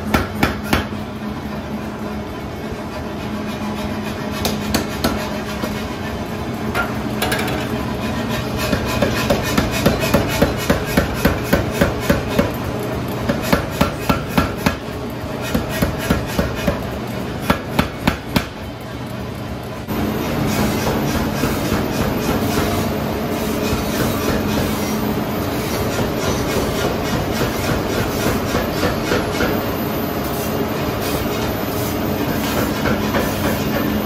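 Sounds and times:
power hammer striking hot iron: 0.0s - 1.0s, 3.7s - 5.8s, 8.4s - 12.6s, 13.2s - 18.6s, 25.7s - 29.6s.

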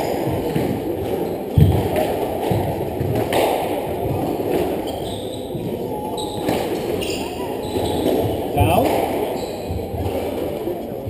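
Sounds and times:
squash ball hits: 0.0s - 4.8s
steady background noise: 0.0s - 11.0s.

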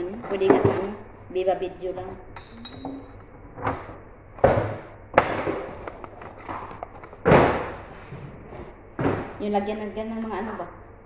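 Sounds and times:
kitchen items knocking and banging: 0.2s - 1.0s, 2.4s - 8.1s, 9.0s - 9.4s
spoon clinking on glass cup: 2.4s - 3.3s.

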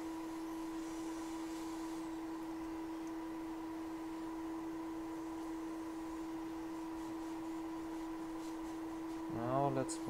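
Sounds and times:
hot air blower hissing: 0.0s - 10.0s
steady hum: 0.0s - 10.0s.

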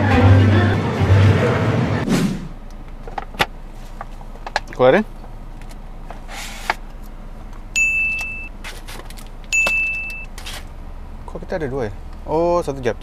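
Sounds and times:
electronic dings: 7.8s - 8.5s, 9.5s - 10.3s.

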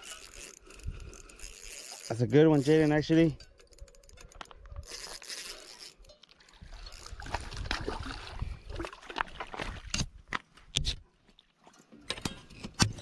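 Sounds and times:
fishing reel cranking: 0.0s - 7.6s
water sloshing: 5.4s - 10.2s.

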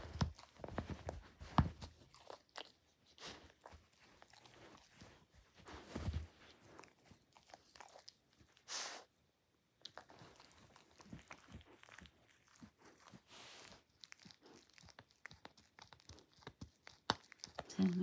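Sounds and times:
dog chewing a plush toy: 0.0s - 9.0s, 9.8s - 18.0s
fabric rustling: 4.0s - 6.8s.

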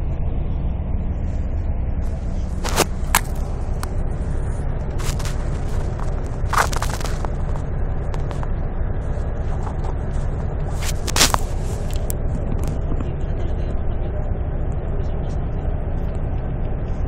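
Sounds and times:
vehicle cabin rumble: 0.0s - 17.0s
phone rustling against clothing: 2.0s - 8.5s, 9.2s - 12.8s.

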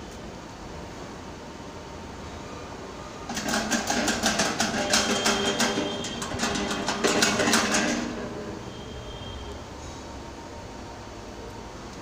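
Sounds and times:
vending machine clicking and rattling: 3.3s - 8.6s.

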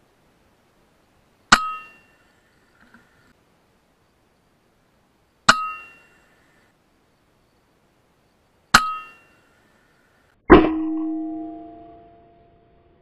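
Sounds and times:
metallic clang and ring: 1.5s - 2.2s, 5.5s - 6.2s, 8.8s - 9.4s, 10.5s - 12.8s.

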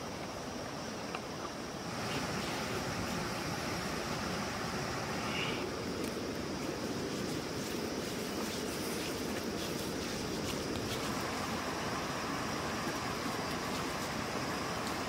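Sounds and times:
faint high whine: 0.0s - 15.0s
rushing outdoor ambience: 0.0s - 15.0s.

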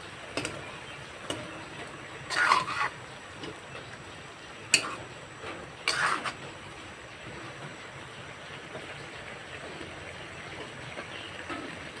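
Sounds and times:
steady cooking hiss: 0.0s - 12.0s
spatula scraping wok: 1.3s - 3.6s, 4.6s - 6.6s.

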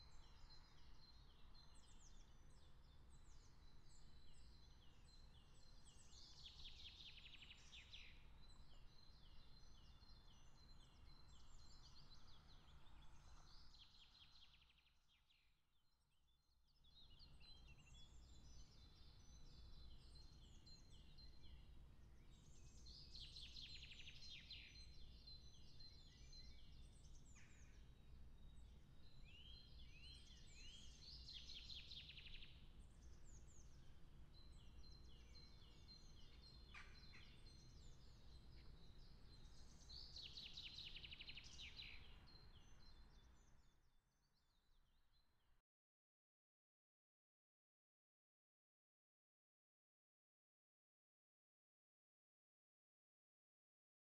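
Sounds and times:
songbird chirping: 0.0s - 15.3s, 16.8s - 43.8s.

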